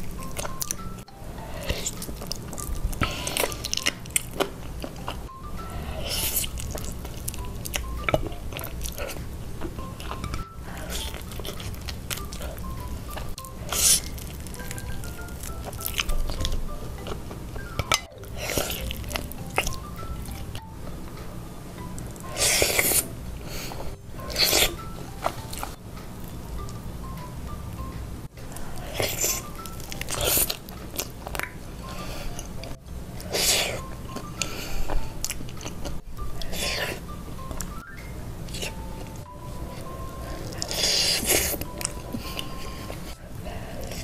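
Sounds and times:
soft background music: 0:00.0 - 0:44.0
wet biting and chewing: 0:01.6 - 0:05.3, 0:06.0 - 0:20.6, 0:28.8 - 0:39.2, 0:39.8 - 0:43.2.

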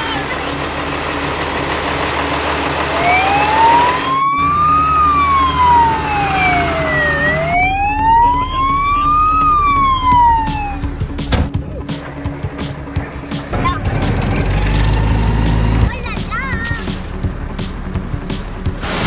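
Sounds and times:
fire truck siren wailing: 0:00.4 - 0:11.3.

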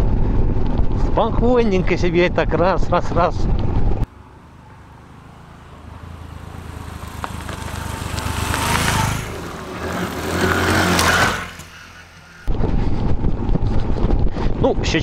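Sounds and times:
small motorcycle engine running: 0:05.2 - 0:12.5
rushing noise: 0:05.9 - 0:13.8.

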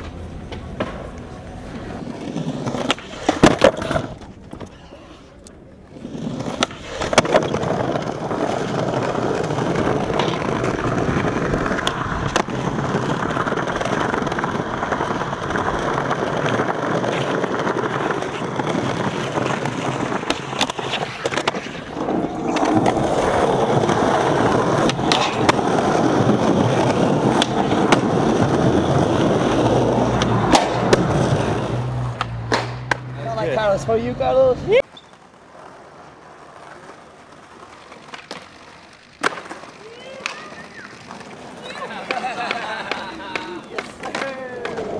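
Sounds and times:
skateboard clacks: 0:00.0 - 0:33.1, 0:34.8 - 0:44.9
skateboard wheels rolling on paving: 0:00.0 - 0:44.9.

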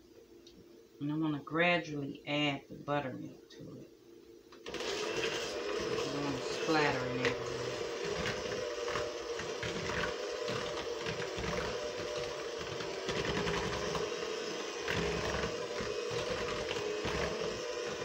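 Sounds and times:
electric hand mixer running: 0:04.6 - 0:18.0.

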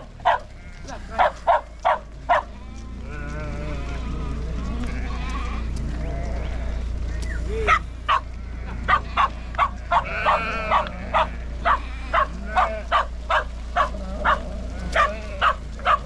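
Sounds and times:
sheep bleating: 0:00.0 - 0:16.0
sheep flock shuffling: 0:00.0 - 0:16.0
dog barking: 0:00.2 - 0:02.5, 0:07.6 - 0:16.0.

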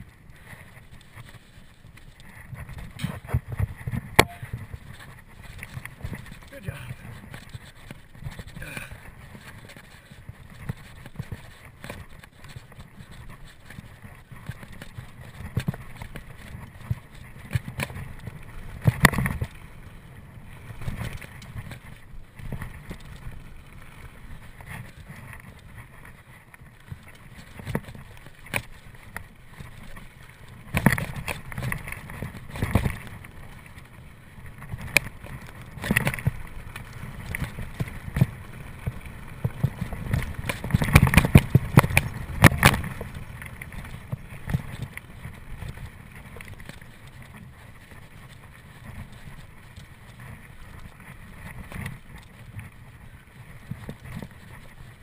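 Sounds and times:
bike knocking and rattling: 0:00.0 - 0:55.0.

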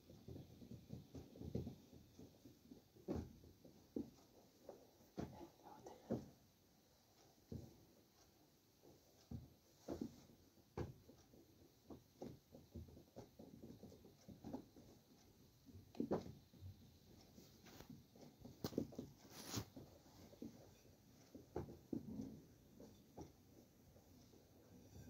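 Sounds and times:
wooden rolling pin on cloth: 0:00.0 - 0:25.0.

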